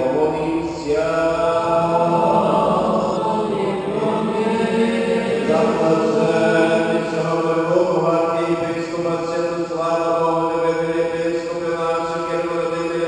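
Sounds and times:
voices chanting long notes: 0:00.0 - 0:08.8.

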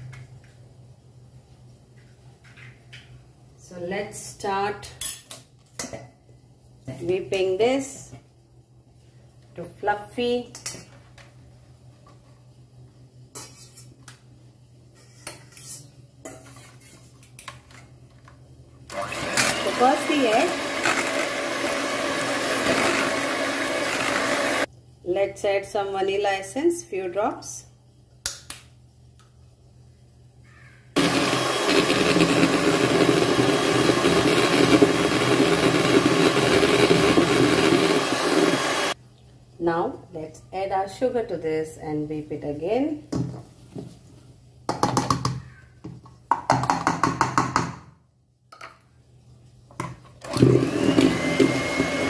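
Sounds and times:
electric hand mixer whipping eggs: 0:18.9 - 0:24.7, 0:31.0 - 0:39.0, 0:50.3 - 0:52.0.

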